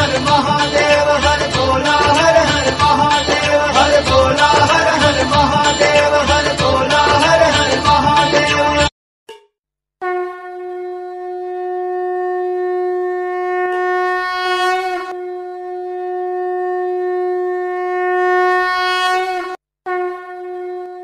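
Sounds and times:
conch shell blasts: 0:09.3 - 0:12.5.

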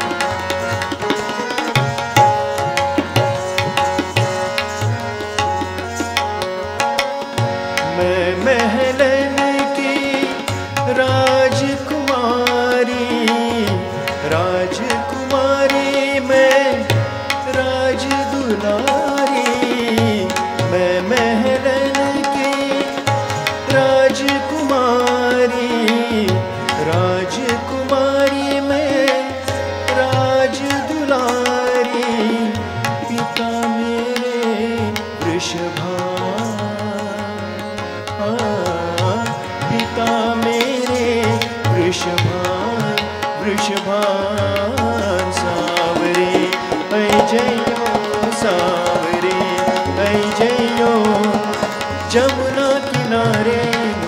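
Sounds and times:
tabla playing: 0:00.0 - 0:54.0.

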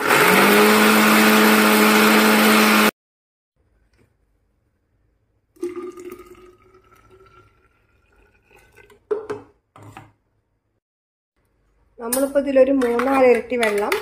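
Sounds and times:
slurry pouring into glass jug: 0:05.6 - 0:09.0.

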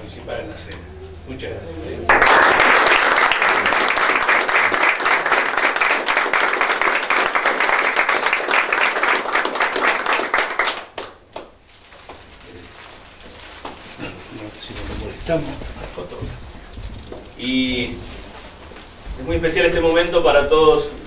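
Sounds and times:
audience applauding: 0:02.1 - 0:11.6.

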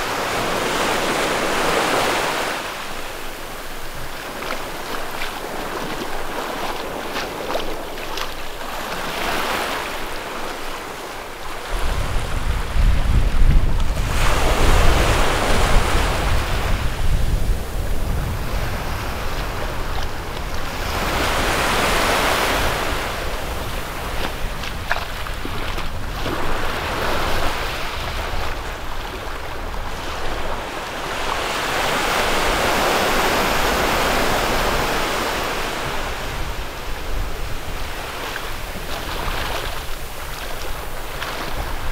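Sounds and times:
sea waves washing on beach: 0:00.0 - 0:41.9
wind buffeting microphone: 0:11.6 - 0:41.9.

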